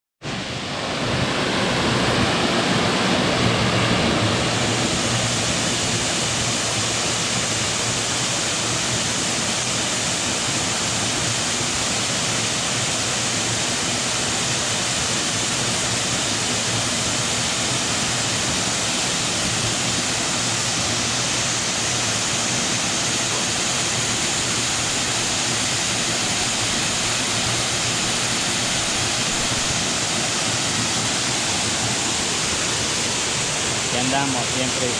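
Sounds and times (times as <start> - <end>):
waterfall rushing: 0.2 - 34.9.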